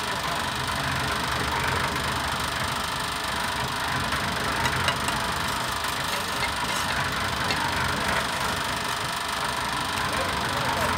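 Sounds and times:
electric mortar mixer running: 0:00.0 - 0:10.9.

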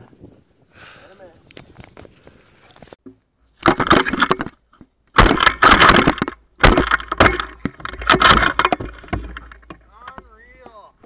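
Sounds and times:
crackling rustling bursts: 0:00.0 - 0:03.0.

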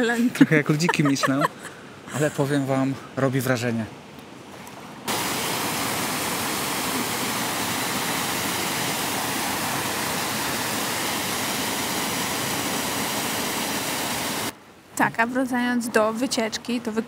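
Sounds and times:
waterfall rushing: 0:05.1 - 0:14.5.

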